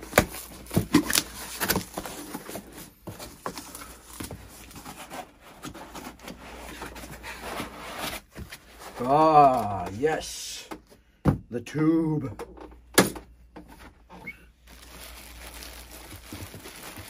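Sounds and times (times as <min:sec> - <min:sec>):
cardboard flaps folding: 0:00.0 - 0:09.9, 0:14.7 - 0:17.0
foam scraping on cardboard: 0:04.6 - 0:09.2.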